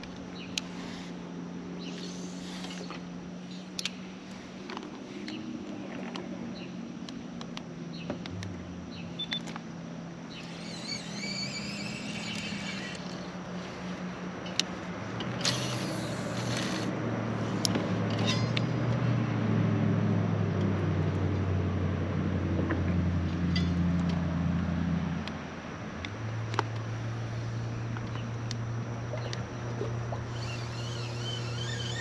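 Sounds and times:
motorboat engine drone: 0:00.0 - 0:32.0.

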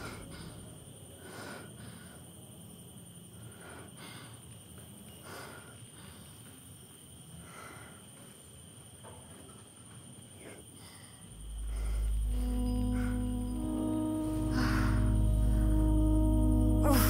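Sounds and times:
faint high-pitched hum: 0:10.4 - 0:17.0.

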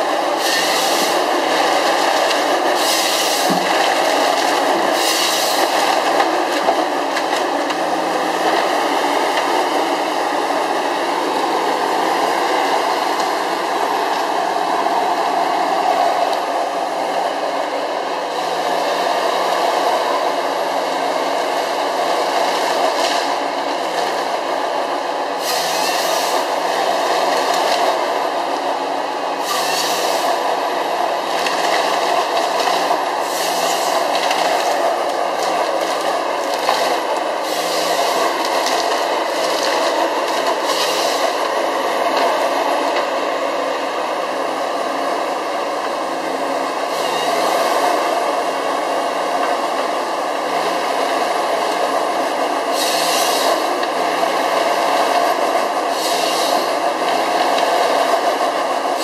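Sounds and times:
harvester engine and hydraulics: 0:00.2 - 0:06.4, 0:24.7 - 0:59.0
branches crackling and rasping: 0:31.3 - 0:41.5.

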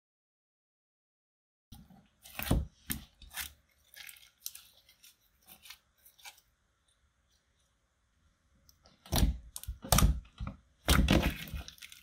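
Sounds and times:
slime squelching: 0:01.8 - 0:07.8, 0:08.6 - 0:12.0.

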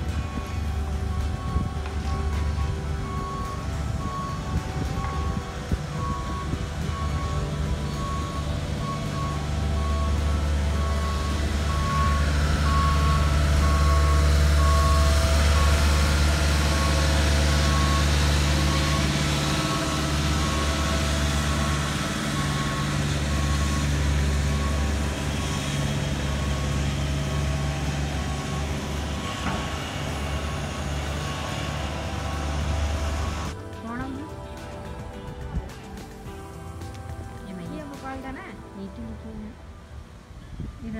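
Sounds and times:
backup alarm beeping: 0:00.0 - 0:35.7
diesel engines running: 0:00.0 - 0:40.9.

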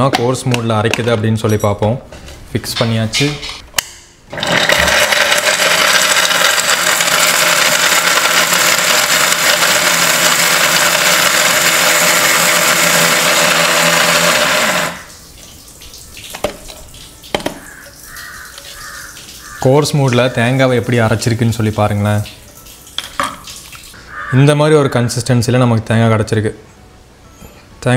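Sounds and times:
mixer grinder motor running: 0:04.3 - 0:15.1.

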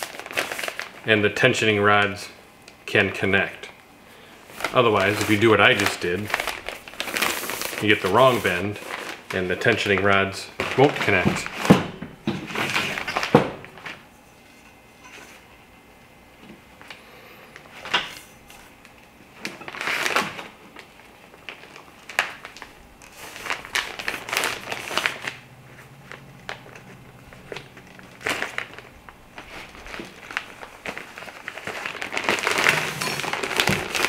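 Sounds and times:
fabric rustling and crinkling: 0:04.4 - 0:15.5, 0:17.6 - 0:34.0.

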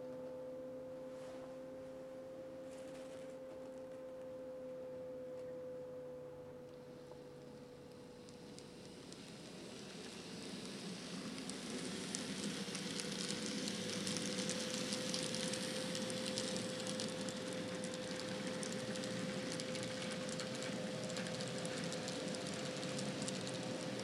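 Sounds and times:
model train motors whining: 0:06.9 - 0:24.0
wheels clicking on track: 0:08.2 - 0:24.0.

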